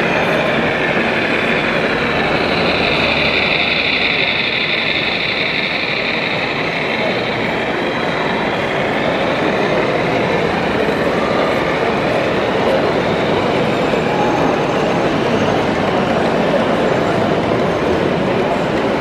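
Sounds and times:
high whine: 0.0 - 13.7
crowd murmur in hall: 0.0 - 19.0
model train running: 0.0 - 19.0.

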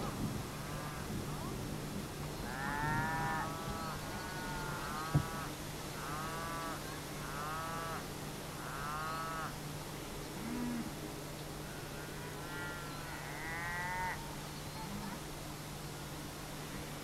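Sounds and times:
cows mooing: 2.5 - 8.0, 8.6 - 9.5, 11.7 - 14.2.

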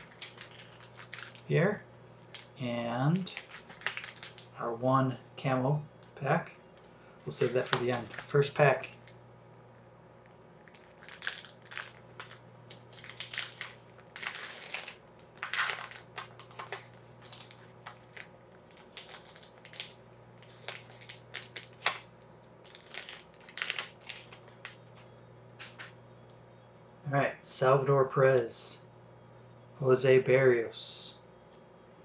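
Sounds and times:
foil wrapper crinkling and tearing: 0.0 - 1.5, 2.2 - 2.6, 3.2 - 4.6, 7.3 - 9.2, 10.6 - 24.8.

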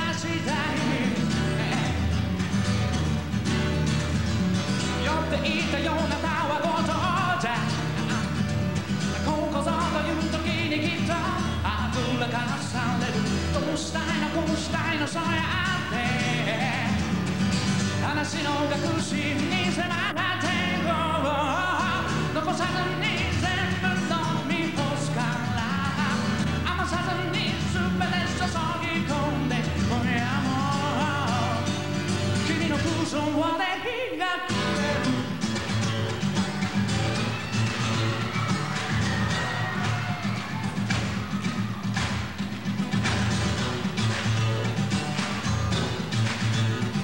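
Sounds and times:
man singing into a microphone: 0.0 - 2.2, 5.0 - 8.2, 9.2 - 17.2, 17.9 - 35.4
acoustic guitar: 0.0 - 47.0.

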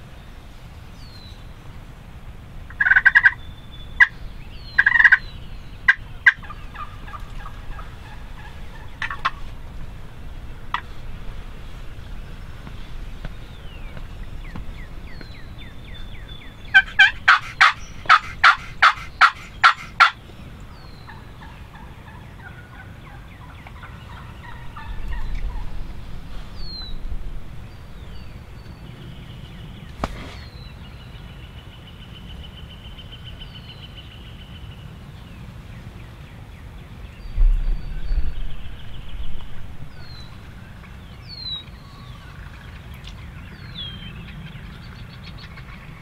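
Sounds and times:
small birds chirping: 0.0 - 2.0, 2.6 - 46.0
turkey yelping: 2.7 - 3.4, 4.8 - 5.2, 5.9 - 9.5, 16.7 - 20.2, 21.1 - 25.7.

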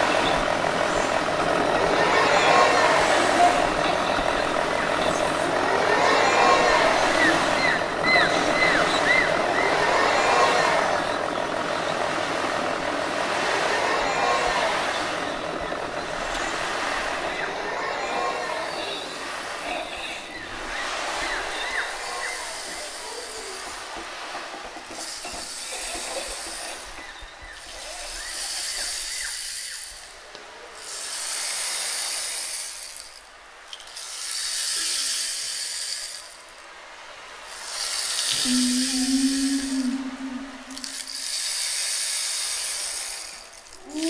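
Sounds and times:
long hiss: 12.7 - 44.0.

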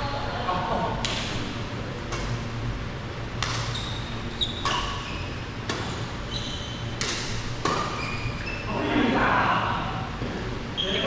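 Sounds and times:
racket hitting shuttlecock: 2.1 - 2.4, 3.4 - 3.8, 4.6 - 6.1, 7.0 - 8.0
shoes squeaking on court: 3.4 - 8.7.

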